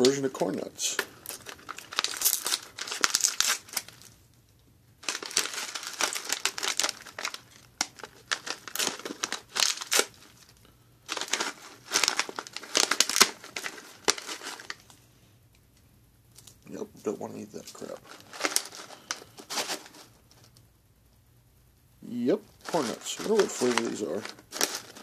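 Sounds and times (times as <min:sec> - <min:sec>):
plastic pouch crinkling and tearing: 0:00.9 - 0:04.2, 0:05.0 - 0:15.0, 0:17.6 - 0:20.6, 0:22.5 - 0:25.0.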